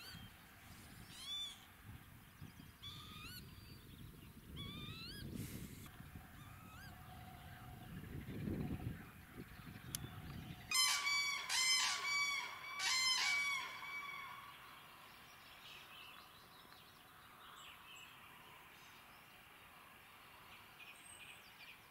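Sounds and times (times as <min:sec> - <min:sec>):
faint outdoor background: 0:00.0 - 0:21.9
lapwing nasal calls: 0:10.7 - 0:14.6.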